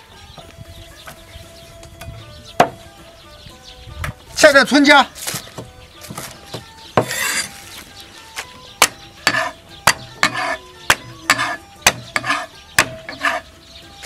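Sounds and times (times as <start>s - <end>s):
cleaver chopping on wooden block: 2.6s - 2.8s, 5.3s - 7.6s, 8.8s - 13.4s
ginger crunching: 5.1s - 9.6s.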